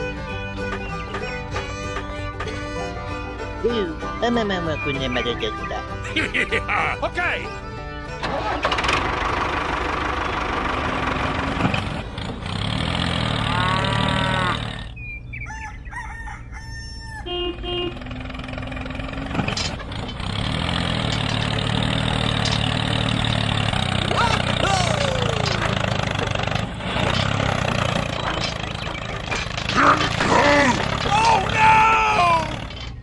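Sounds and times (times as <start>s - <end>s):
tractor engine running: 0.0s - 15.9s, 17.3s - 33.0s
rooster crowing: 15.4s - 17.4s.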